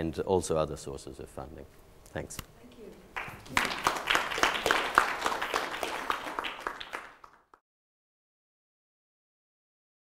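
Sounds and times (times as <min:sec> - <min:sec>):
audience applauding: 0:03.2 - 0:07.6.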